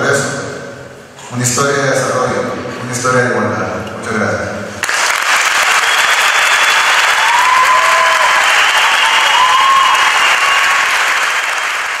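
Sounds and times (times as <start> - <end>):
large audience clapping: 4.8 - 12.0.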